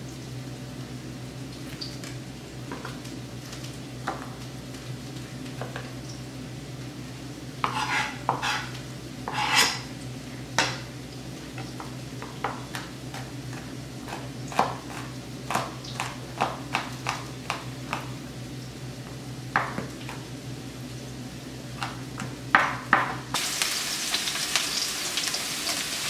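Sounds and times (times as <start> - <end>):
knife chopping on plastic board: 7.6 - 8.7, 11.6 - 18.1, 21.8 - 23.2.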